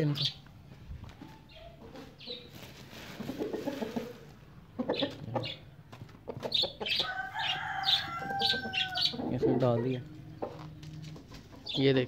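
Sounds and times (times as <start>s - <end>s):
chickens clucking: 0.0s - 12.0s
chicken drawn-out call: 6.5s - 10.7s.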